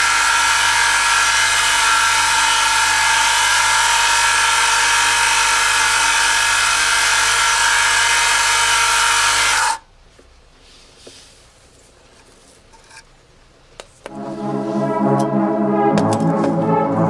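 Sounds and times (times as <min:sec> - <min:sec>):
electric motor whining: 0:00.0 - 0:09.8.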